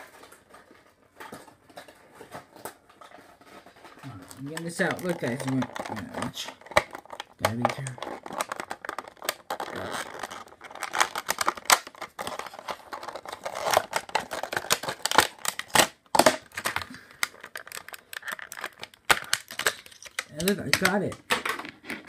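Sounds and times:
plastic packaging crackling: 0:00.0 - 0:22.0.

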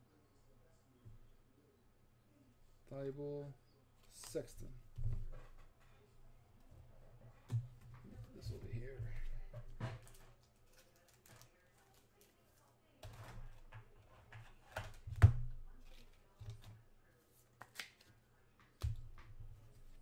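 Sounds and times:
cards clicking and tapping: 0:17.6 - 0:19.3.

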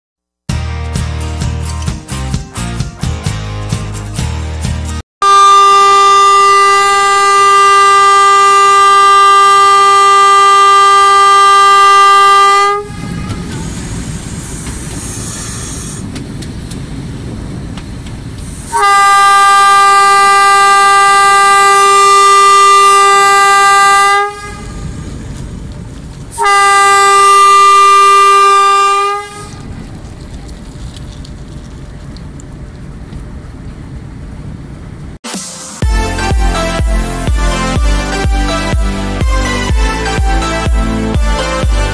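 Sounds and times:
locomotive horn blasts: 0:05.2 - 0:14.1, 0:18.7 - 0:25.1, 0:26.4 - 0:29.7, 0:35.8 - 0:41.9
train running rumble: 0:05.8 - 0:41.9.

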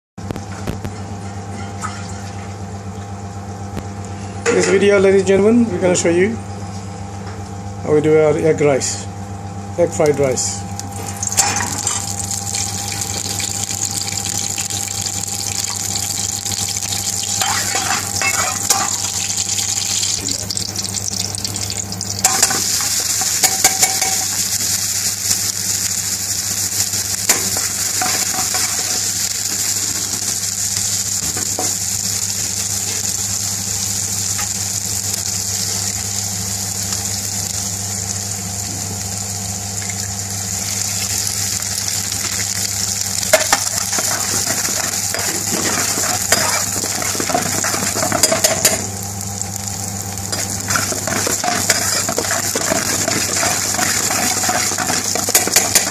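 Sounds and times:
vegetables sizzling in oil: 0:10.4 - 0:55.9
metal spoon scraping wok: 0:43.5 - 0:48.7, 0:50.3 - 0:55.9.

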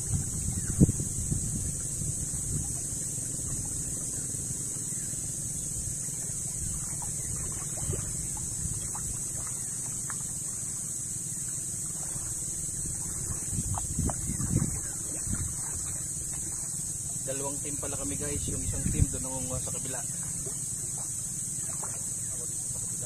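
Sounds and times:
wind rumbling on microphone: 0:00.0 - 0:22.9
water splashing against boat: 0:00.0 - 0:23.0
steady high hiss: 0:16.0 - 0:23.0.

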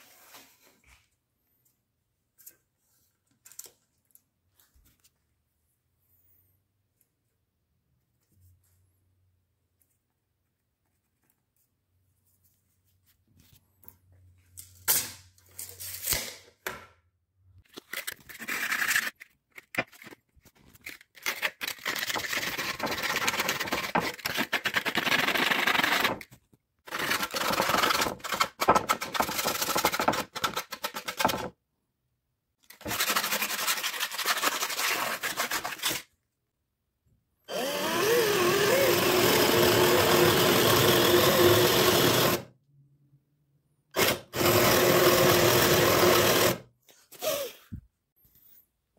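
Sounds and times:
power drill boring into wood: 0:37.5 - 0:42.5, 0:44.0 - 0:46.6.

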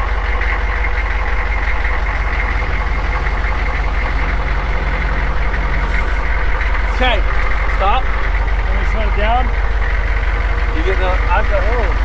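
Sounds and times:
low hum: 0:00.0 - 0:11.3
diesel engine idling: 0:00.0 - 0:12.0.

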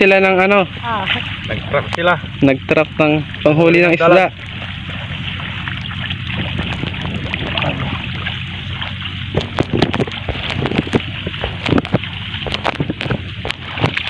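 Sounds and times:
stalks and grass rustling: 0:00.0 - 0:14.0
wind buffeting microphone: 0:04.2 - 0:14.0.

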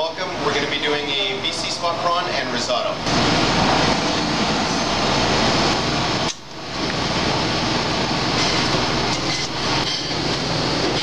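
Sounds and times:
ventilation fans running: 0:00.0 - 0:11.0.

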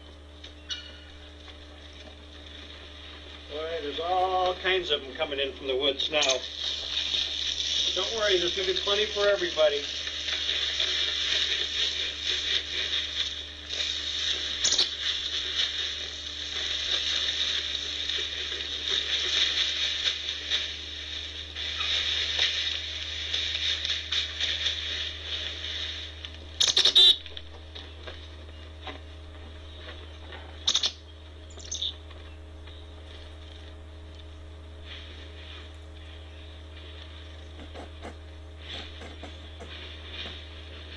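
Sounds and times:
faint low hum: 0:00.0 - 0:40.9
footsteps crunching in snow: 0:06.5 - 0:26.6.

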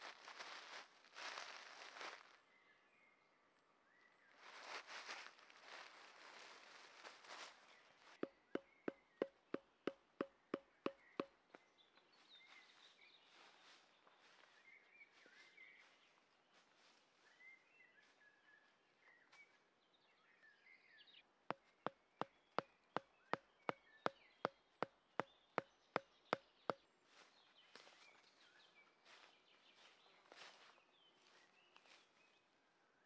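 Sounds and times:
faint birds chirping: 0:00.0 - 0:33.0
hammer blows on stake: 0:08.2 - 0:11.3.

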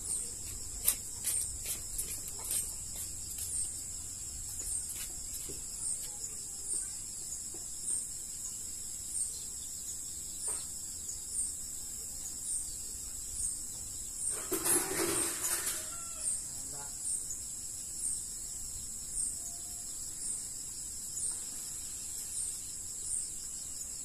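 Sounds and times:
insect chirp: 0:00.0 - 0:24.0
insects buzzing high-pitched: 0:00.0 - 0:24.0.

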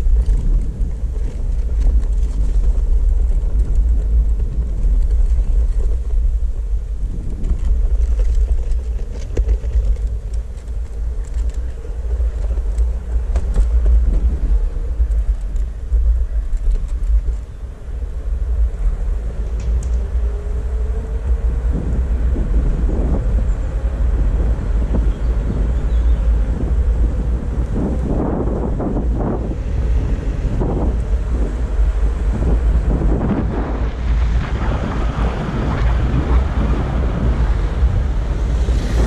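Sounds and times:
skateboard wheels rumbling: 0:00.0 - 0:39.0
small clicks and knocks: 0:07.3 - 0:14.4.

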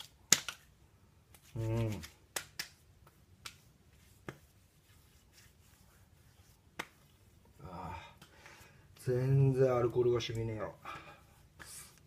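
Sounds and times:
palms slapping cheeks: 0:00.0 - 0:04.6, 0:06.6 - 0:07.5, 0:08.1 - 0:09.1, 0:11.4 - 0:12.0.

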